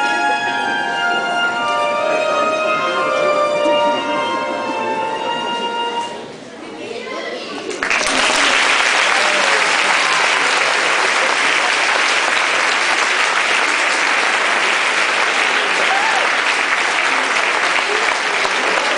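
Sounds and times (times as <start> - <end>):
audience applauding: 7.7 - 18.9.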